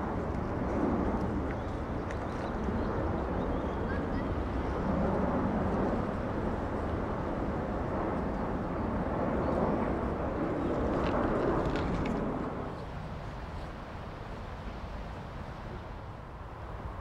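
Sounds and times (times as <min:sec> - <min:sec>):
jet airliner flying overhead: 0:00.0 - 0:17.0.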